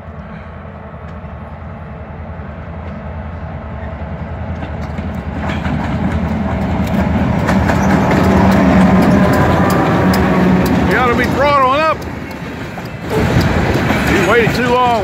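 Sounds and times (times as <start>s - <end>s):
diesel locomotive engine drone: 0.0s - 15.0s
train wheels clicking over rail joints: 4.5s - 15.0s.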